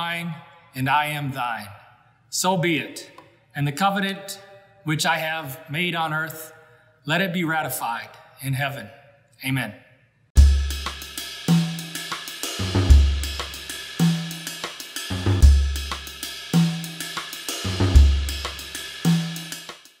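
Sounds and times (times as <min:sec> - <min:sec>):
drum-kit beat music: 0:10.4 - 0:20.0
hi-hat and cymbal ticks: 0:10.4 - 0:20.0.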